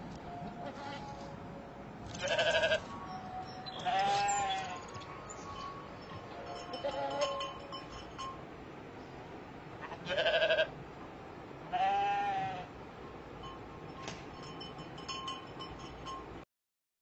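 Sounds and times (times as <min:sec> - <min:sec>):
goat bleating: 0:00.6 - 0:01.2, 0:02.2 - 0:02.9, 0:03.8 - 0:04.9, 0:09.8 - 0:10.7, 0:11.7 - 0:12.7.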